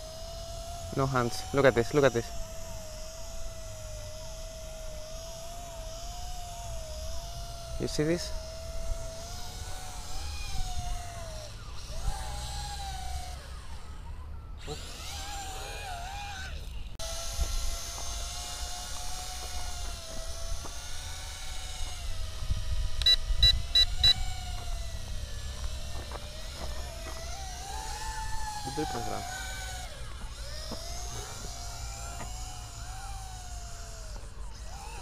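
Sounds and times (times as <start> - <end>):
drone propellers whining: 0.0 - 35.0
short high beeps: 23.0 - 24.2.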